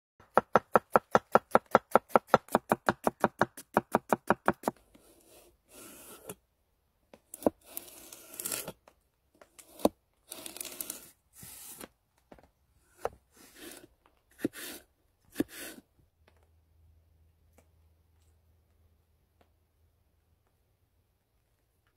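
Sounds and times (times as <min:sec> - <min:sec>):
knife chopping on wooden board: 0:00.2 - 0:04.8
knife slicing carrot: 0:00.4 - 0:06.4, 0:09.6 - 0:11.9, 0:12.9 - 0:15.8.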